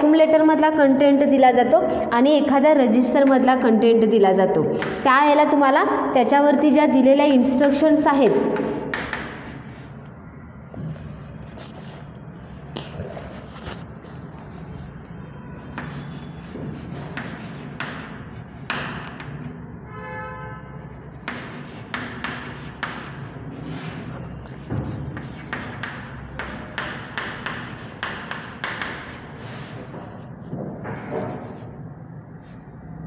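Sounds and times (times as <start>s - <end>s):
chalk scratching on chalkboard: 8.5s - 10.1s, 10.9s - 19.4s, 20.8s - 30.3s, 30.9s - 32.7s.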